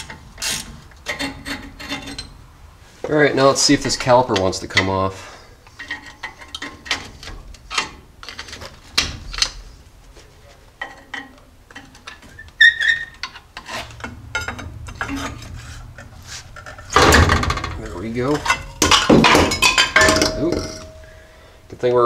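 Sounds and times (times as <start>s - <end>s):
screwdriver scraping metal: 0.0s - 2.4s, 10.8s - 17.0s
rapid metallic knocking and rattling: 13.1s - 21.1s
sharp metallic clank: 13.6s - 21.4s.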